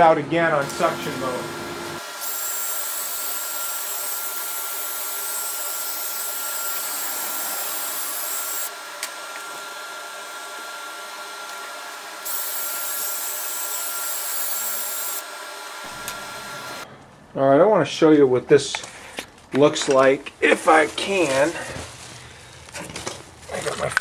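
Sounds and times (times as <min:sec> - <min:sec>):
shop vac running: 0:00.0 - 0:16.9
rotary brush scrubbing vent pipe: 0:00.6 - 0:16.9.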